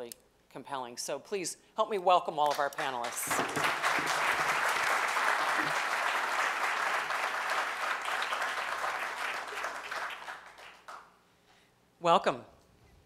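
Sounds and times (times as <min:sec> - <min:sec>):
audience applauding: 0:02.8 - 0:11.1.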